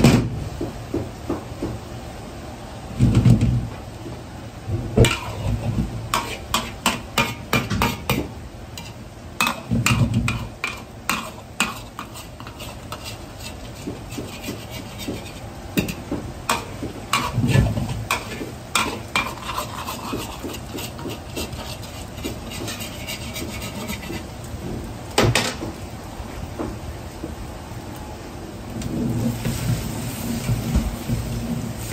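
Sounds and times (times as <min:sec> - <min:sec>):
metal ladle scraping a wok: 0:05.0 - 0:08.2, 0:08.8 - 0:24.3
omelette sizzling in oil: 0:05.0 - 0:24.6, 0:28.9 - 0:31.9.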